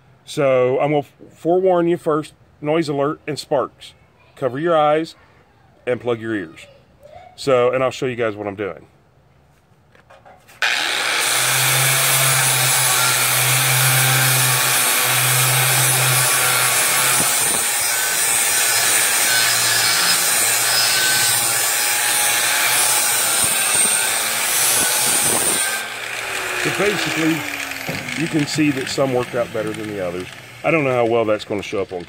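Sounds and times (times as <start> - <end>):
angle grinder grinding metal: 10.6 - 32.0.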